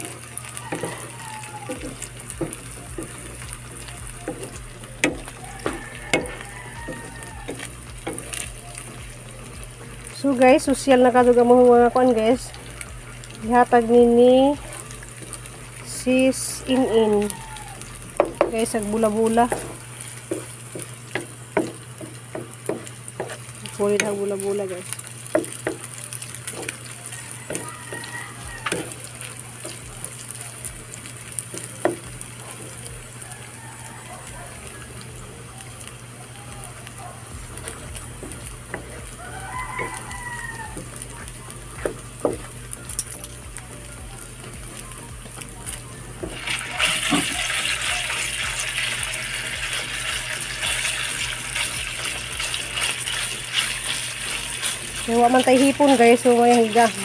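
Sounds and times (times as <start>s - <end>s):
meat sizzling in hot oil: 0.0s - 57.0s
wooden spatula scraping pan: 18.4s - 24.2s.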